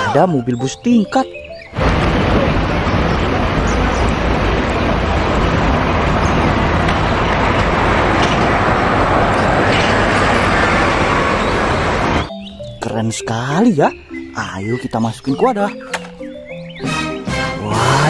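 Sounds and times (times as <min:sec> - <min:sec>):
street traffic: 0:00.0 - 0:18.0
bus driving past: 0:01.8 - 0:12.4.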